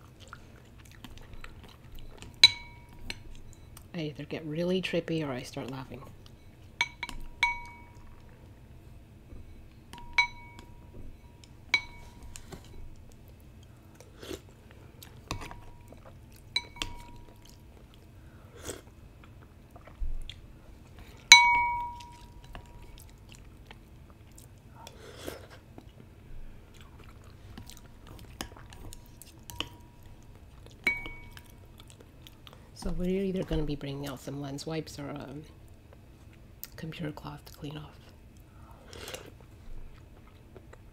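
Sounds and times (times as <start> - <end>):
utensils clinking on ceramic bowl: 2.4 - 3.2, 6.8 - 8.1, 9.9 - 10.9, 11.7 - 12.4, 16.6 - 17.4, 21.3 - 22.9, 30.8 - 31.5
wet stirring noises: 4.6 - 8.5, 9.4 - 13.4, 15.0 - 18.0, 19.4 - 24.6, 27.1 - 31.8.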